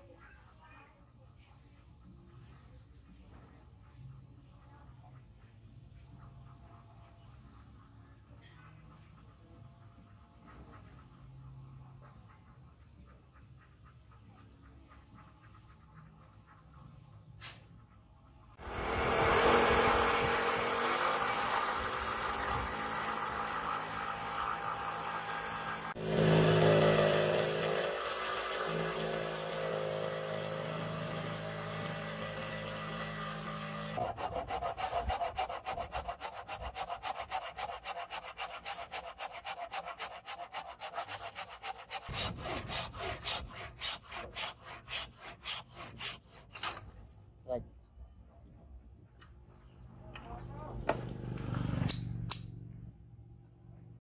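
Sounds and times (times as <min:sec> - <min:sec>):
electric jigsaw cutting wood: 0:18.6 - 0:45.3
hand saw rasping on wood: 0:18.6 - 0:47.0.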